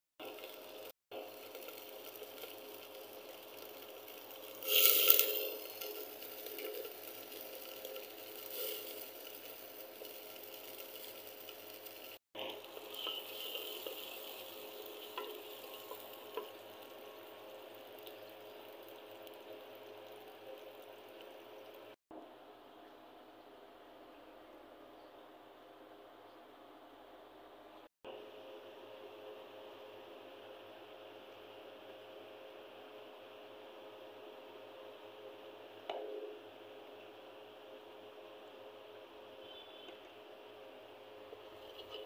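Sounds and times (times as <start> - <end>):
garlic sizzling in hot oil: 0.2 - 22.0, 37.3 - 42.0.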